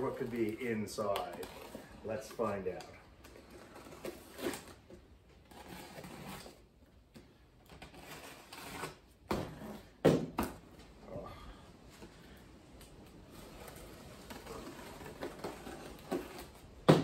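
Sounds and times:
cardboard scraping and rustling: 0.0s - 6.7s, 13.2s - 17.0s
packing tape peeled off box: 0.0s - 6.7s, 7.7s - 9.8s, 13.3s - 17.0s.

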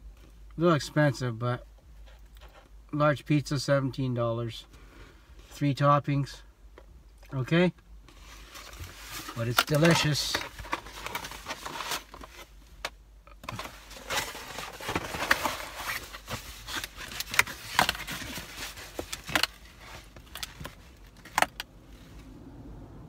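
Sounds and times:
cardboard box rustling and clicking: 13.4s - 21.6s.

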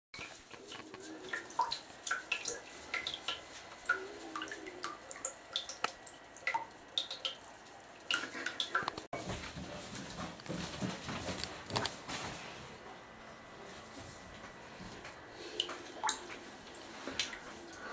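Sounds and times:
water plinks and splashes: 0.2s - 9.1s, 15.5s - 17.9s.

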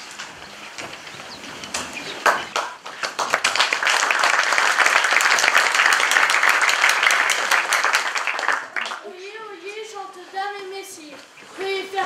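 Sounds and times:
audience applauding: 1.7s - 9.1s.

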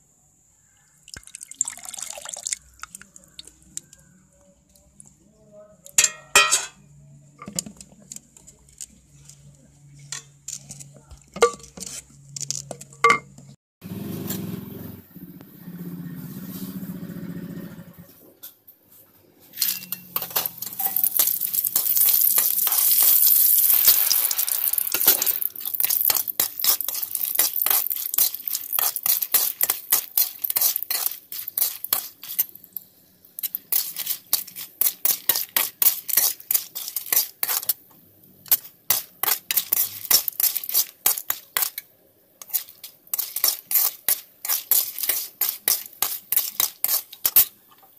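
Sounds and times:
spoon clinking against pan: 6.0s - 6.8s
wooden spoon stirring in pot: 19.5s - 41.8s, 42.4s - 47.9s
chillies sizzling in hot oil: 19.5s - 47.9s.

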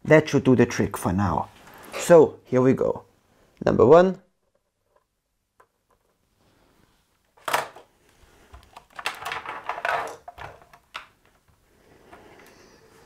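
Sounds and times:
small objects clattering on workbench: 8.6s - 11.4s.

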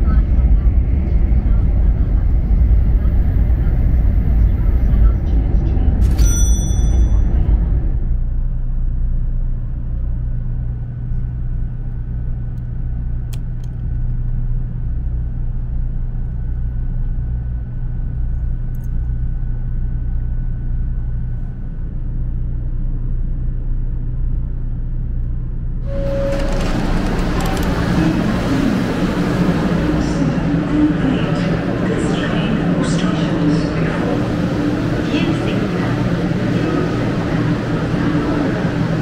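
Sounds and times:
train carriage rumble and hum: 0.0s - 39.0s
brief tone: 6.0s - 7.6s, 25.8s - 28.2s.

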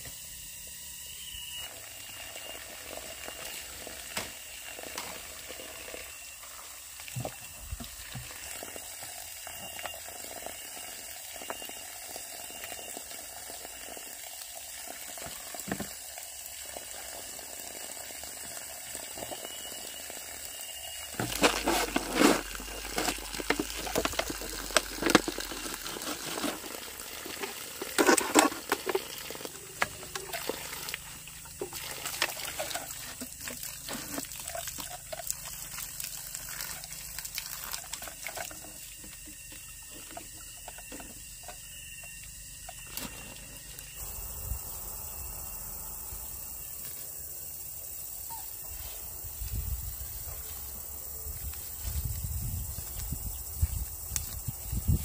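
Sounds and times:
water trickling and splashing: 1.6s - 44.2s.

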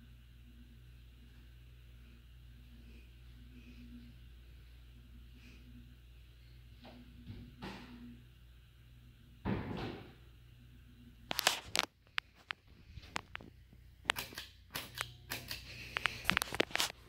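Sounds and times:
ceiling fan humming: 0.0s - 17.0s
sharp clicks and knocks: 11.3s - 16.9s.

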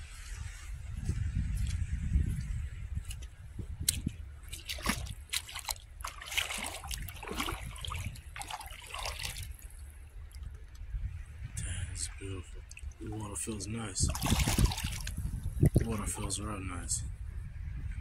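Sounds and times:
steady low rumble: 0.0s - 18.0s
feet splashing through water: 3.1s - 10.6s, 14.1s - 15.9s.

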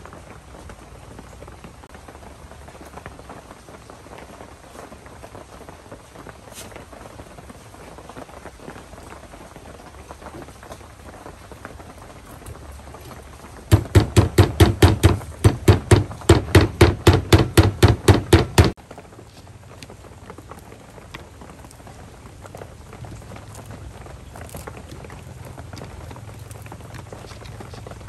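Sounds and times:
knife chopping on wooden block: 13.7s - 18.8s.

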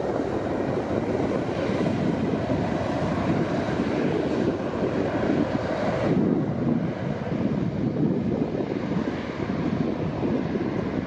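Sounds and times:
jet engines at takeoff thrust: 0.0s - 11.0s.

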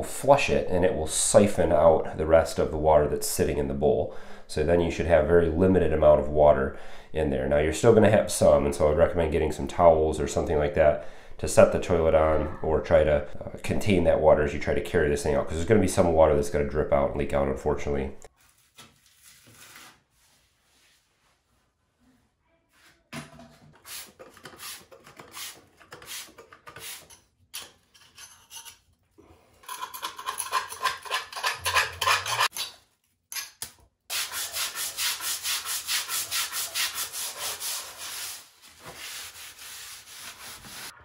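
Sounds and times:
scraping and scrubbing on tile floor: 18.3s - 41.0s.

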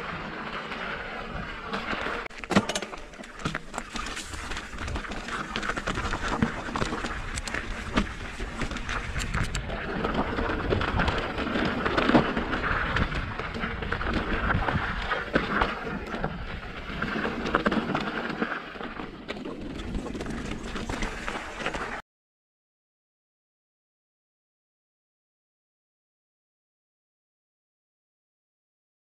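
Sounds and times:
bike knocking and rattling over rocks: 0.0s - 22.0s
bike tyres crunching on gravel: 0.0s - 22.0s.

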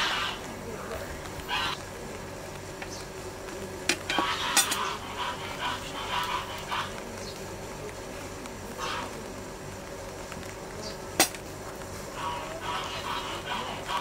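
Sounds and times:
animal calling: 0.0s - 1.9s, 4.1s - 7.4s, 8.7s - 9.3s, 12.1s - 14.0s.

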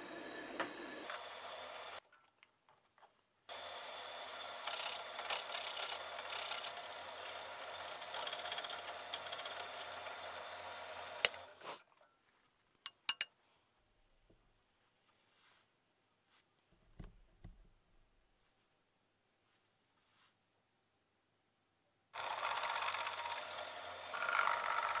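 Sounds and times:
drill bit boring: 3.5s - 11.5s, 22.2s - 25.0s
drill press motor running: 3.5s - 11.5s, 22.2s - 25.0s.

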